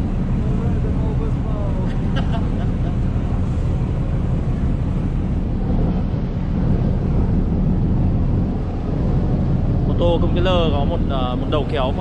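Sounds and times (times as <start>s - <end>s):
boat engine rumbling: 0.0s - 12.0s
wind buffeting microphone: 0.0s - 12.0s.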